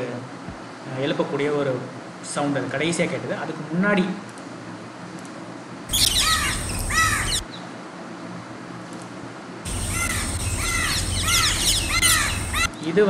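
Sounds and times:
crow alarm calls: 5.9 - 7.4, 9.7 - 12.8.

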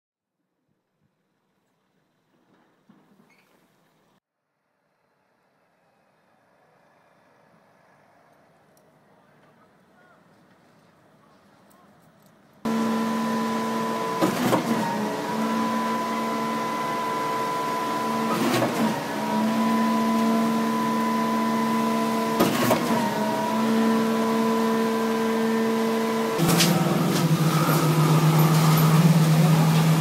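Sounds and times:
pump engine running: 12.7 - 30.0
pump clunking: 26.4 - 30.0.

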